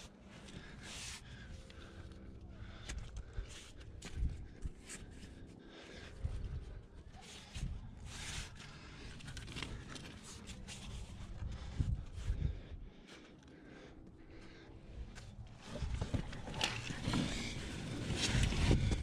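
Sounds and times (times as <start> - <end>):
heavy breathing: 0.1 - 19.0
hands and gear scraping rock: 15.6 - 19.0.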